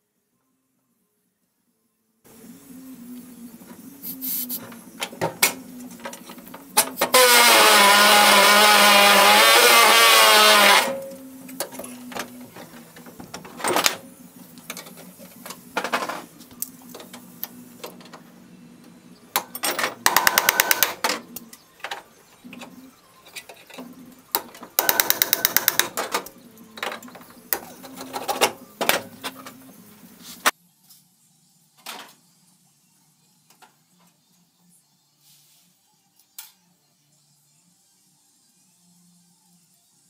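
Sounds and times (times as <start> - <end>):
pneumatic air tool hammering: 20.0 - 21.0, 24.8 - 26.0
tools clicking and knocking: 23.3 - 29.0.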